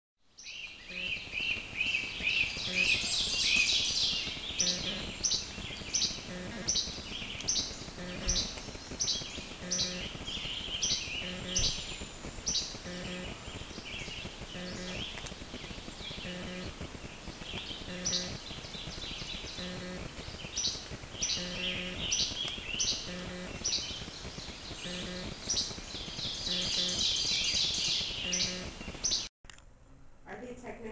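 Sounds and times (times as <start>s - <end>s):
fast warbling birdsong: 0.3s - 29.3s
repeating short bird note: 2.7s - 3.1s, 17.9s - 18.4s, 26.5s - 27.0s, 28.2s - 28.8s.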